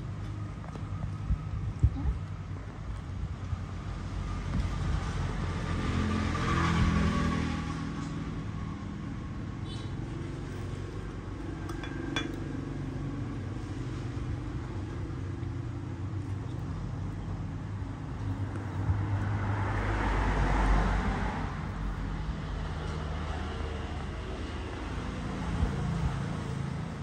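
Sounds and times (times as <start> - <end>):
rumble of passing vehicle: 0.0 - 27.0.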